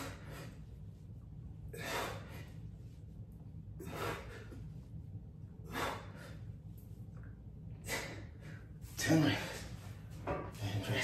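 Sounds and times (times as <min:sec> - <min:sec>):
man breathing hard: 0:00.0 - 0:00.9, 0:01.6 - 0:02.9, 0:03.8 - 0:04.9, 0:05.5 - 0:06.7, 0:07.7 - 0:09.8
steady low hum: 0:00.0 - 0:11.0.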